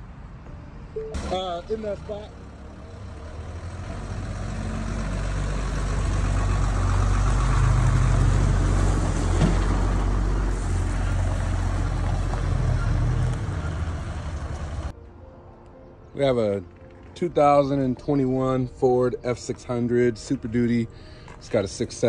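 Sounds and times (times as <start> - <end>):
truck engine rumbling: 1.0 - 14.9.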